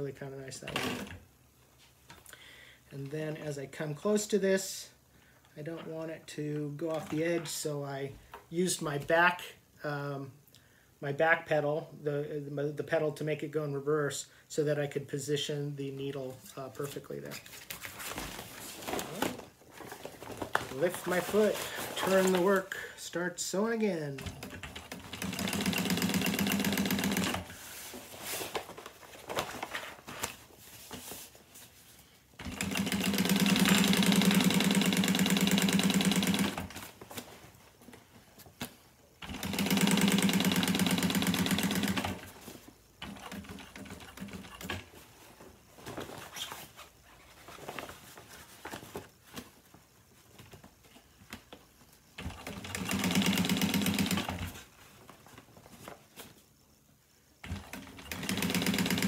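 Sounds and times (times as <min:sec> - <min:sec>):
sewing machine stitching: 0:24.2 - 0:27.5, 0:32.4 - 0:36.8, 0:39.2 - 0:42.4, 0:43.0 - 0:44.9, 0:52.2 - 0:54.6, 0:57.4 - 0:59.0.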